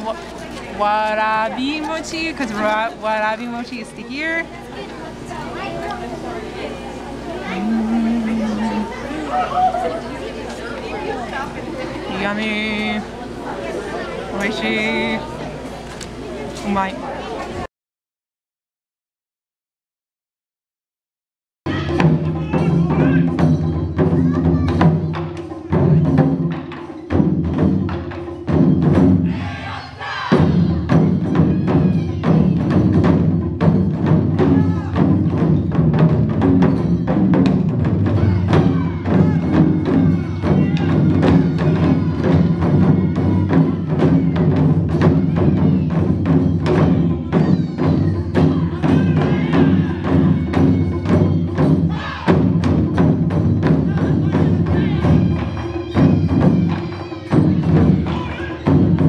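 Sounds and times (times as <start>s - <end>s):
taiko drumming: 7.5s - 10.0s, 21.7s - 59.0s.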